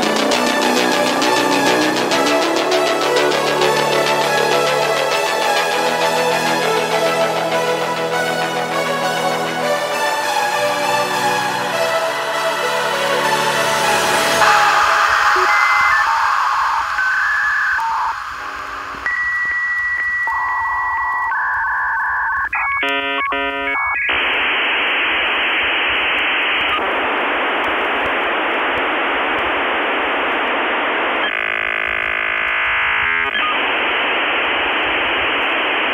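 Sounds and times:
dial-up modem tones and hiss: 0:14.4 - 0:35.9.

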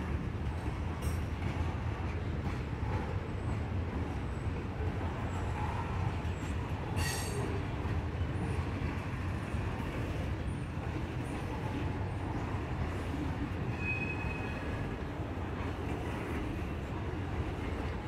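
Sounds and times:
freight train rumbling on rails: 0:00.0 - 0:18.0
high squeal of train: 0:00.0 - 0:18.0.

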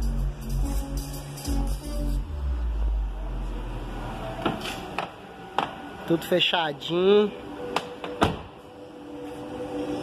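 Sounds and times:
deep bass rumble from subwoofers: 0:00.0 - 0:04.0.

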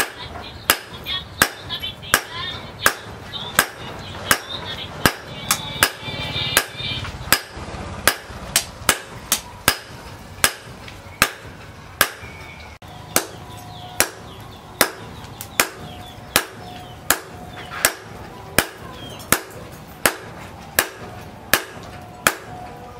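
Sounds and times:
hammer striking metal on anvil: 0:00.0 - 0:06.0, 0:06.6 - 0:12.4, 0:13.1 - 0:22.7.

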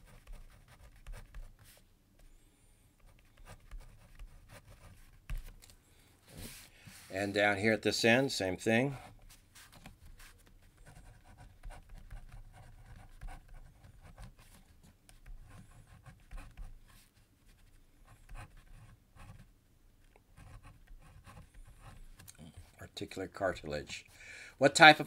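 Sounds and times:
pen scratching on paper: 0:00.0 - 0:01.8, 0:03.0 - 0:05.5, 0:09.3 - 0:19.5, 0:20.3 - 0:22.7.

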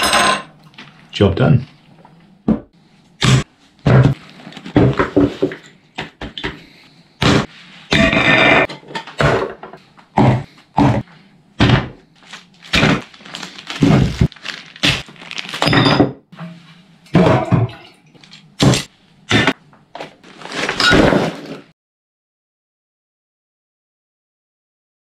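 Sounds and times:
loud thuds and knocks: 0:02.5 - 0:06.6, 0:10.2 - 0:12.0.

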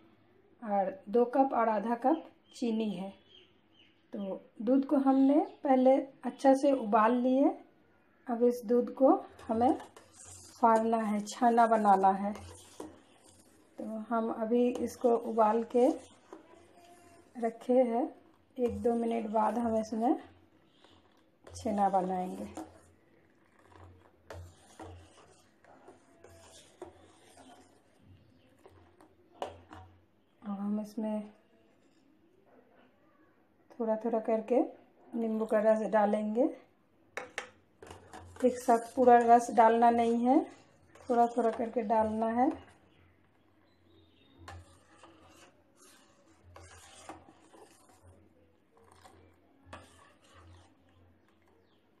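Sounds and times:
metal ladle scraping saucepan: 0:08.6 - 0:30.0, 0:37.2 - 0:51.8.

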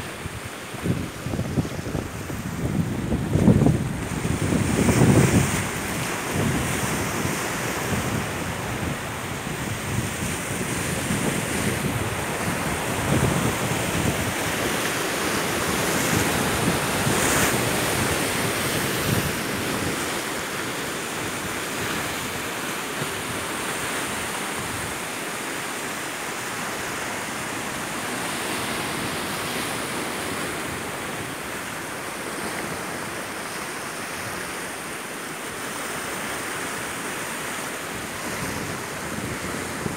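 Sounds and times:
wind rumble on microphone: 0:00.0 - 0:20.5, 0:37.9 - 0:39.9
surf on rocky shore: 0:00.0 - 0:39.9.

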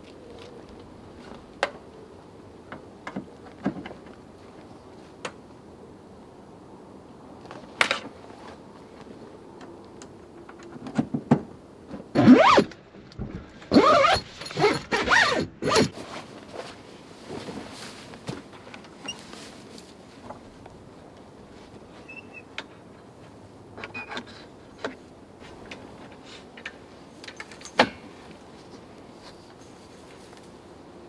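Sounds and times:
zips being pulled open: 0:12.1 - 0:12.8, 0:13.7 - 0:16.1.

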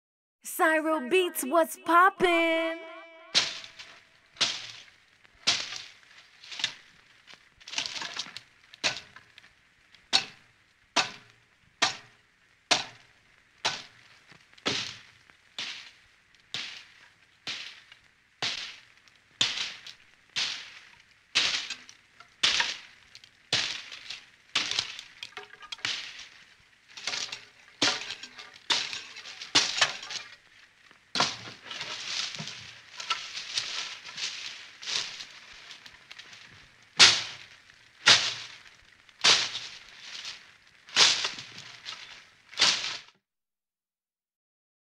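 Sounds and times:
knife chopping strokes: 0:03.4 - 0:04.8, 0:26.9 - 0:30.3.

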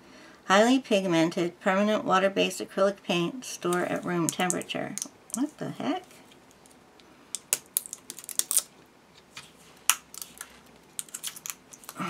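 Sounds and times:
plastic sleeve clicks and crackles: 0:07.4 - 0:08.7, 0:09.9 - 0:12.0.

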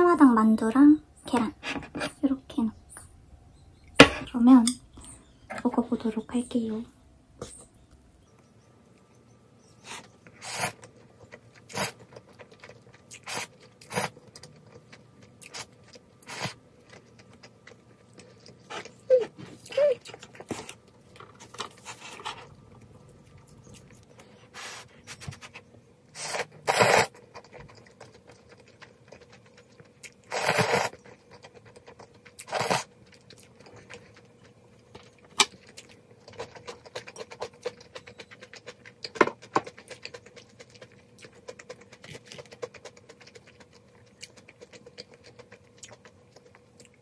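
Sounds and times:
faint steady hum: 0:00.0 - 0:47.0
person chewing noodles: 0:09.8 - 0:25.4, 0:26.1 - 0:47.0
loud slurps: 0:26.2 - 0:27.2, 0:30.3 - 0:30.9, 0:32.4 - 0:32.9.

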